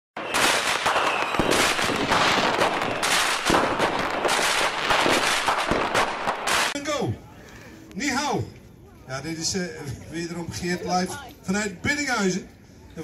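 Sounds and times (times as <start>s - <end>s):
fireworks crackling and banging: 0.2s - 6.9s.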